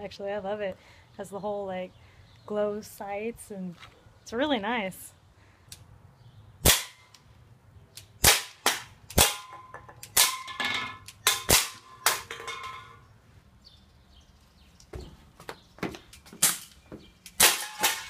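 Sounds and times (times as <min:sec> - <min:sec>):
bb pistol shots popping: 0:06.6 - 0:07.1, 0:08.2 - 0:09.5
metallic ring of cans hit: 0:09.2 - 0:13.0.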